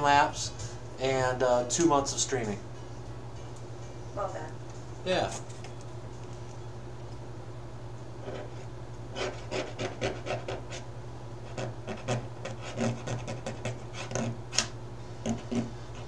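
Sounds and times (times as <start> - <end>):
tool scratching painted board: 8.2 - 10.8, 11.4 - 16.0.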